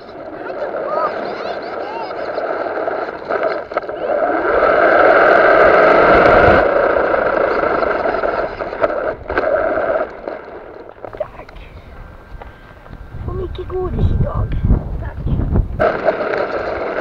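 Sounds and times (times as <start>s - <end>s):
rc car motor whining: 0.0s - 11.0s
tyres on gravel: 0.0s - 13.9s, 15.7s - 17.0s.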